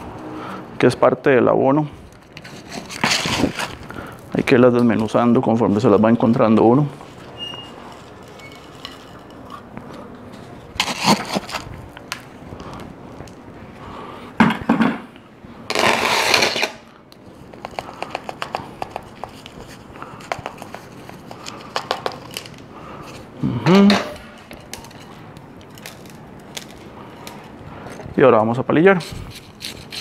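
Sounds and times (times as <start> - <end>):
plastic scoop scraping soil: 2.4 - 3.8, 10.8 - 11.7.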